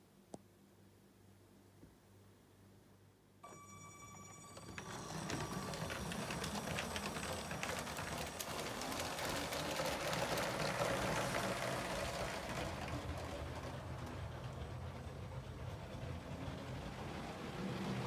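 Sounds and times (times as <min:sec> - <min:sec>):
toy train rattling on track: 0:04.2 - 0:18.0.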